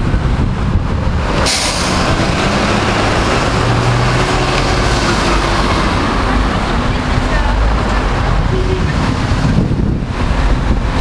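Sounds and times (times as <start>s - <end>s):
bus engines rumbling: 0.0s - 11.0s
loud air hiss: 1.4s - 2.2s.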